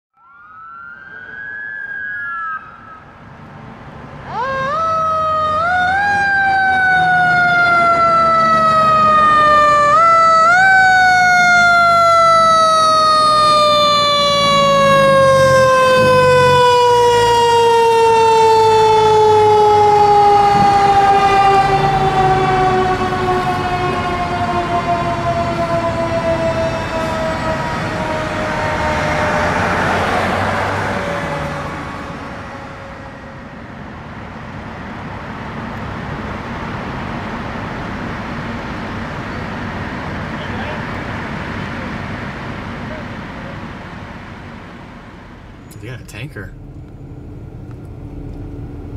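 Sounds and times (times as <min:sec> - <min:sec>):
faint siren rising and falling: 0:00.1 - 0:34.1.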